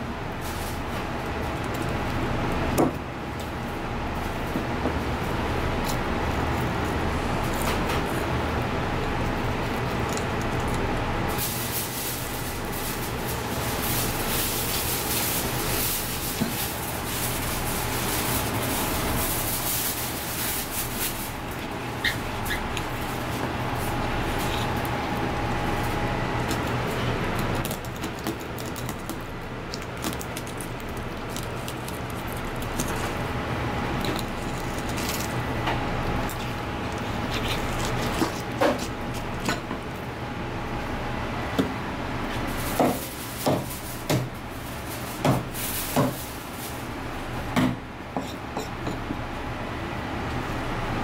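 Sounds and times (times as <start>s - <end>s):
steady low hum: 0.0s - 51.0s
knife scraping fish bones: 36.2s - 39.2s.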